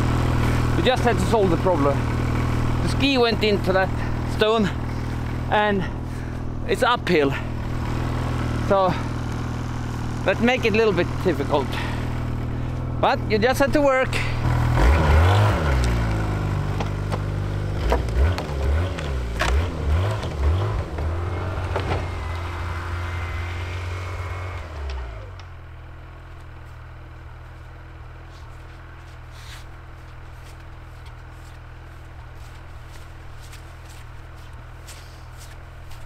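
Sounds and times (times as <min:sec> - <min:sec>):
snowmobile engine revving: 0:00.0 - 0:25.5
faint footsteps in snow: 0:26.2 - 0:36.0.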